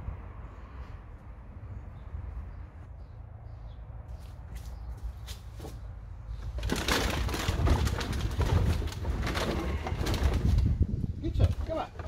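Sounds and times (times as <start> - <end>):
plastic bottles crackling and clattering: 6.4 - 12.0.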